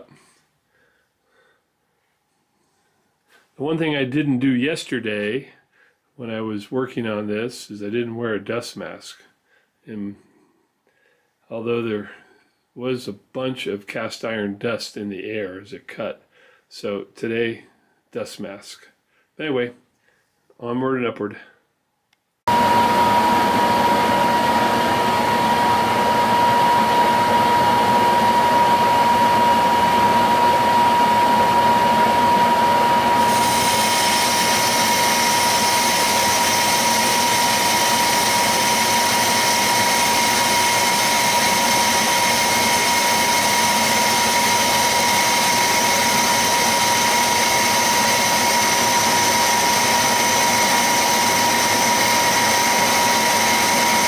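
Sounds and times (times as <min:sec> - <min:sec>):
lathe running with high whine: 0:22.5 - 0:54.0.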